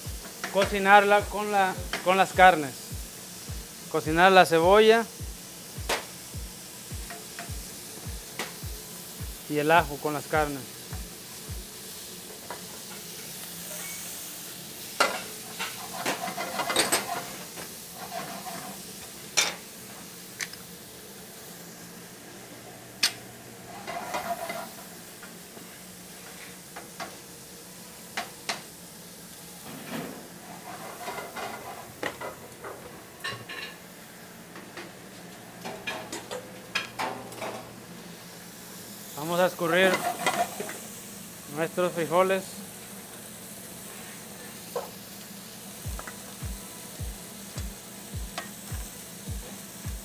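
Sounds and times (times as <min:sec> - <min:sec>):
meat sizzling in a frying pan: 0:00.0 - 0:50.0
wooden spatula scraping a pan: 0:15.6 - 0:18.8, 0:23.7 - 0:24.7, 0:29.7 - 0:32.0, 0:39.8 - 0:40.7.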